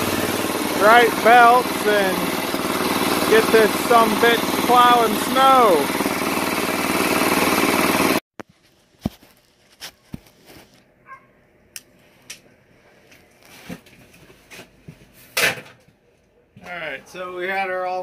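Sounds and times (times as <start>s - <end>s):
snowblower engine running: 0.0s - 8.2s.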